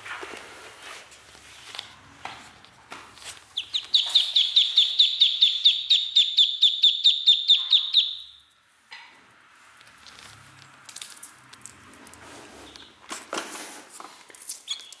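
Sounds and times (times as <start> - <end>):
duckling peeping: 3.4 - 8.4, 14.6 - 15.0.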